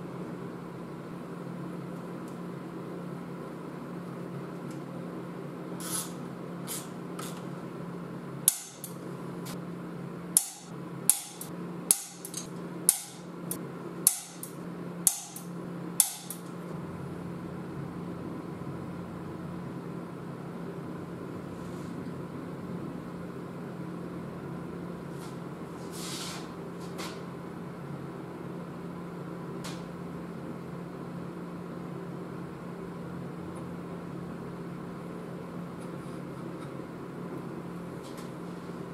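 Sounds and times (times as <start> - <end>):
steady low hum: 0.0 - 38.9
hammer tapping on metal: 10.4 - 13.2, 14.1 - 16.4.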